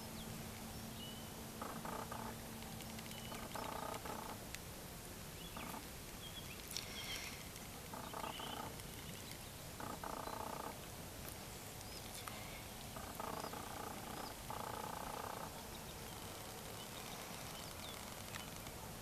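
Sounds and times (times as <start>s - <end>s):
steady hiss: 0.0s - 19.0s
faint bird chirps: 0.1s - 4.4s, 5.4s - 10.7s, 11.5s - 18.7s
frogs croaking: 1.6s - 4.4s, 5.4s - 5.9s, 6.8s - 10.9s, 12.2s - 18.8s.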